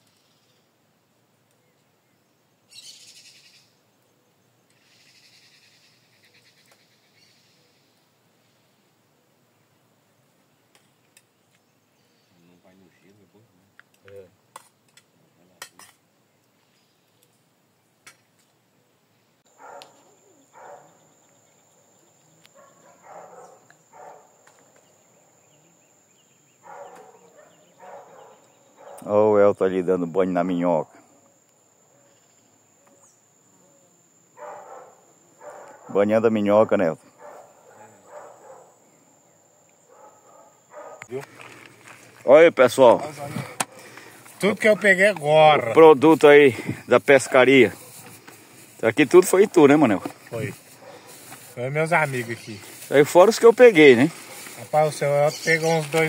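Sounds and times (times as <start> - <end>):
dog barking faintly: 19.5 - 21.0, 21.8 - 24.4, 26.6 - 29.1, 33.6 - 36.1, 37.1 - 38.8, 39.9 - 41.2, 50.3 - 51.2
small animal trilling: 55.1 - 56.0.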